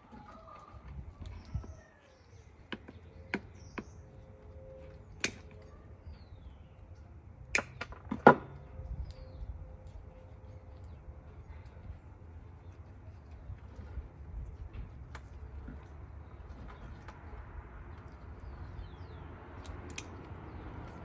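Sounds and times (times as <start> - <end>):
scissors snipping stems: 19.5 - 21.0.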